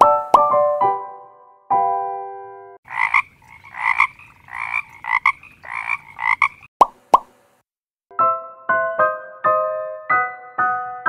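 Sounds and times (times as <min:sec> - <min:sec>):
keyboard melody: 0:00.0 - 0:02.8, 0:08.1 - 0:11.0
frog croaking: 0:02.9 - 0:06.7.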